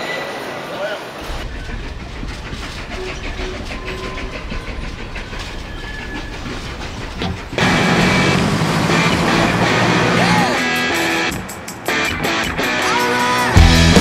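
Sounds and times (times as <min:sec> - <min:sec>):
train rumble inside carriage: 0:00.0 - 0:14.0
wheels clicking over rails: 0:01.2 - 0:12.3.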